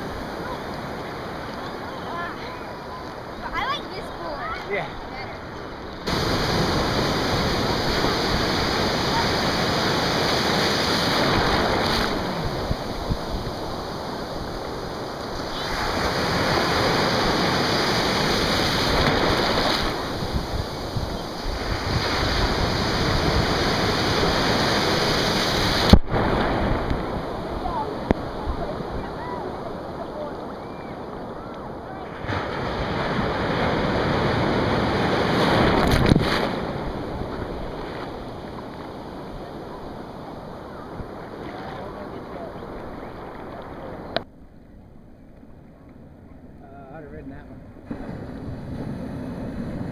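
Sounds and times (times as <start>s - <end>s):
ocean surf breaking: 0.0s - 44.3s, 46.6s - 49.9s
water splashes: 0.0s - 44.3s.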